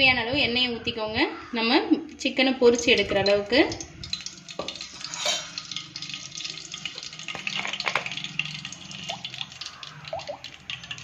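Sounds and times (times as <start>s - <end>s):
bottle gurgling: 3.8s - 11.0s
oil pouring and splashing: 3.8s - 11.0s.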